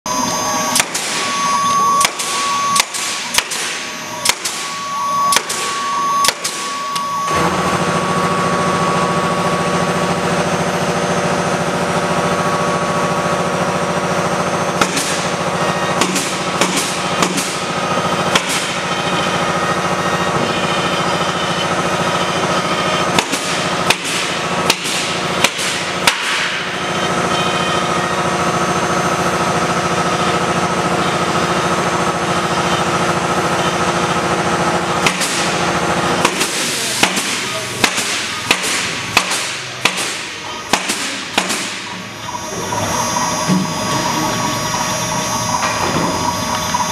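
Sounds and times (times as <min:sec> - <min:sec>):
loud steady hum: 0:00.0 - 0:46.9
router spindle whining: 0:00.1 - 0:24.6, 0:41.9 - 0:46.9.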